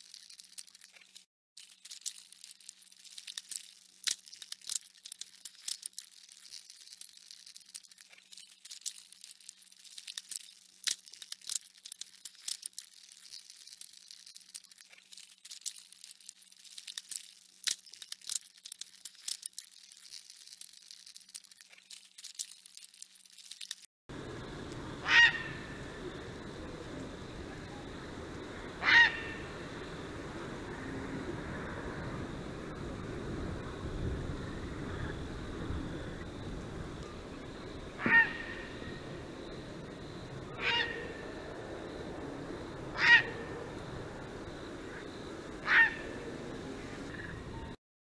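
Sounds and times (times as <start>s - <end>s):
caterpillar chewing leaf: 0.0s - 27.8s
faint low hum: 24.1s - 47.8s.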